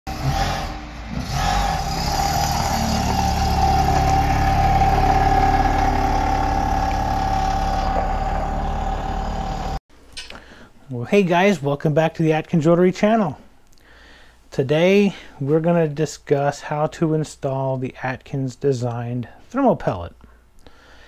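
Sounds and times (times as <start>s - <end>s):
car engine revving and droning: 0.1s - 9.8s.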